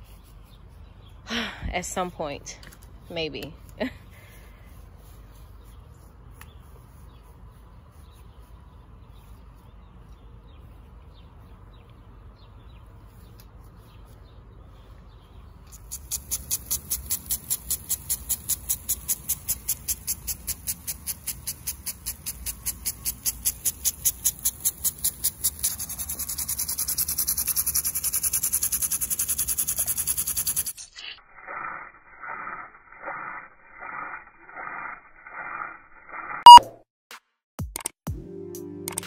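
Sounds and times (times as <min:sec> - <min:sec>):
water spray hissing: 0:15.7 - 0:30.9
sprinkler ticking: 0:15.8 - 0:30.8
electronic beeping tune: 0:36.3 - 0:36.8
loud click: 0:36.4 - 0:36.8.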